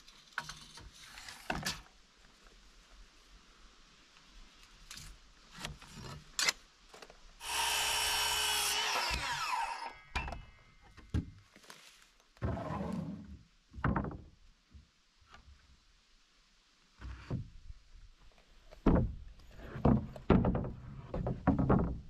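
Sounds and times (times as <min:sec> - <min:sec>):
circular saw cutting wood: 0:07.4 - 0:10.1
wooden knocks and scrape: 0:12.4 - 0:14.4, 0:17.0 - 0:17.7, 0:18.7 - 0:22.0.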